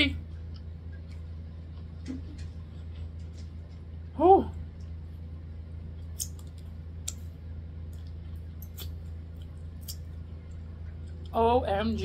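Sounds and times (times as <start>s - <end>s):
steady low hum: 0.0s - 12.0s
sharp wet clicks: 6.2s - 7.3s
mouth chewing: 7.9s - 11.4s.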